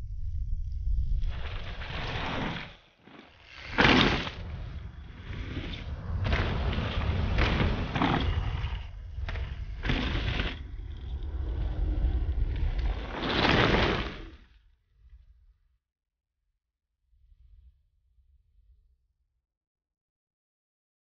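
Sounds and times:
steady low rumble: 0.0 - 2.4, 3.6 - 13.6.

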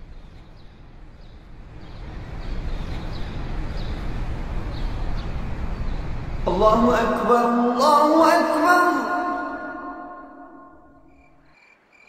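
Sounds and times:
small birds chirping: 0.0 - 6.9, 10.9 - 12.0
low steady rush: 0.0 - 11.5.

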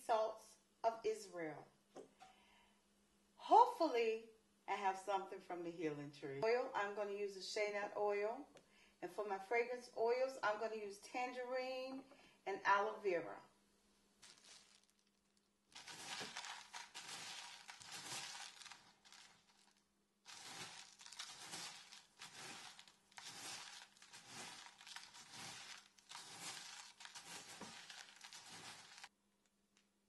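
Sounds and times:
bath salts crunching by hand: 14.2 - 29.1.

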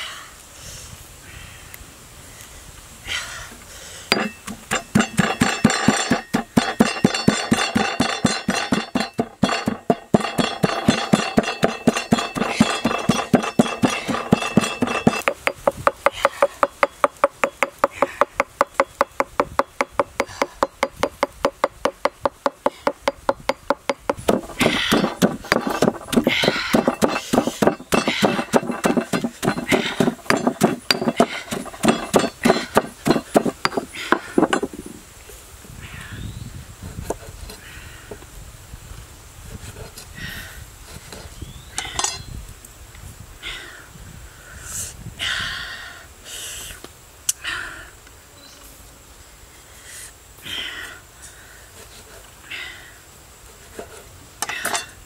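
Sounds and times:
pestle pounding in stone mortar: 4.1 - 34.8.

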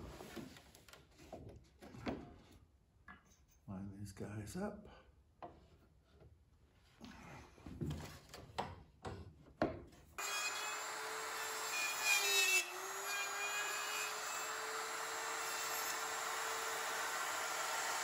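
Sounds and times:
handheld router running: 14.1 - 18.0.

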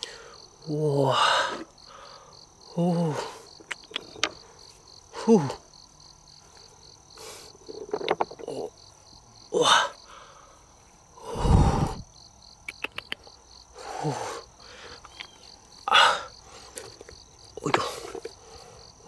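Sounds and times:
insects chirping: 0.0 - 19.0
rocks shifted in wooden box: 7.6 - 8.7.

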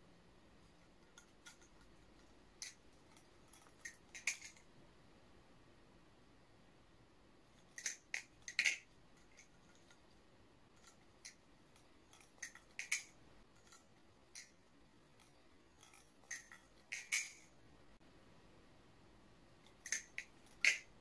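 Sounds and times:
butterfly knife clacking: 7.8 - 9.9, 12.1 - 14.6, 19.8 - 20.9.

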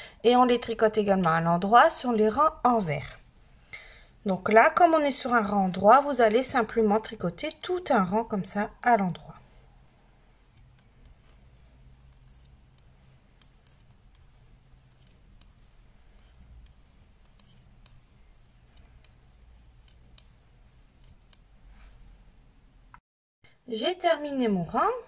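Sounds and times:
metal knitting needles clicking: 10.0 - 21.6.

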